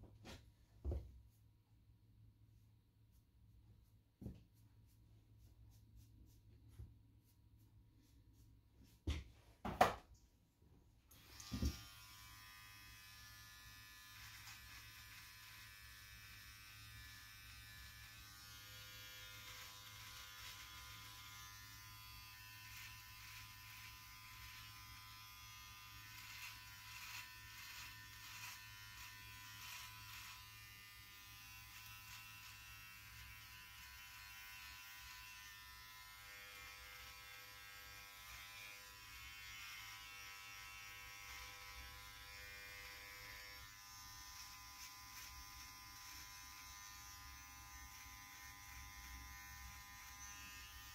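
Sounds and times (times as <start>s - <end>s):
hair trimmer buzzing: 11.1s - 50.9s.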